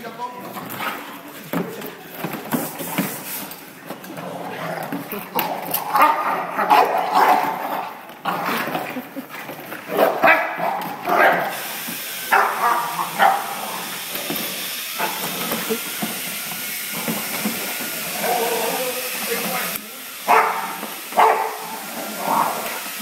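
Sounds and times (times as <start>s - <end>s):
dogs chewing plastic: 0.3s - 23.0s
dogs barking: 5.4s - 9.2s, 9.9s - 14.1s, 14.9s - 15.9s, 18.1s - 18.9s, 20.2s - 23.0s.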